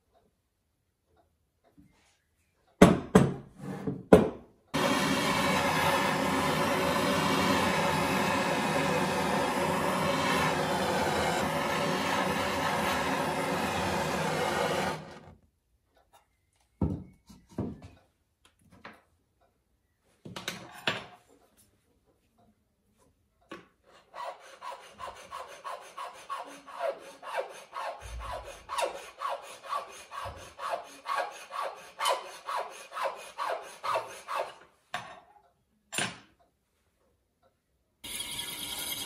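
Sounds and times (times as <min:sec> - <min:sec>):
blowtorch burning with buzzing tone: 0:04.8 - 0:15.3.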